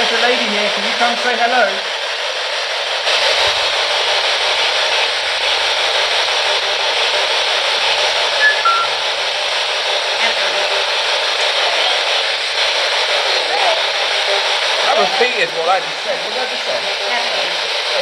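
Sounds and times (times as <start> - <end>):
radio static hiss: 3.1 - 9.2, 9.9 - 18.0
faint radio tones: 8.4 - 9.0.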